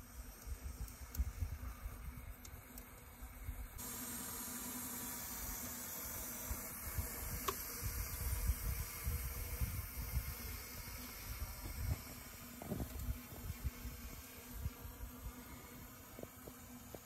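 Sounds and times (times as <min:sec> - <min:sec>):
steam hissing: 0:03.8 - 0:17.0.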